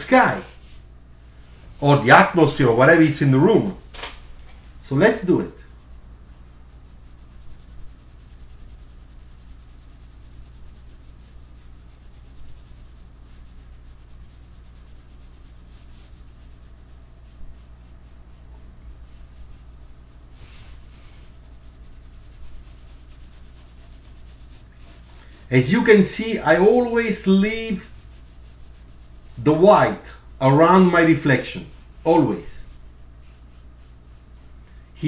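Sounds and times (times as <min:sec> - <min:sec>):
pencil scratching on paper: 0:05.2 - 0:30.2, 0:32.3 - 0:34.6.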